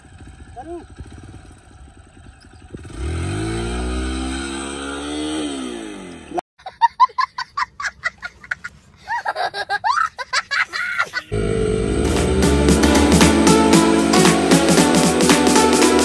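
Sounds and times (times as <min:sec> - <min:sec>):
motorcycle engine revving: 0:00.0 - 0:06.4, 0:11.3 - 0:15.9
high-pitched laughter and giggling: 0:06.6 - 0:11.4
music: 0:11.8 - 0:16.0.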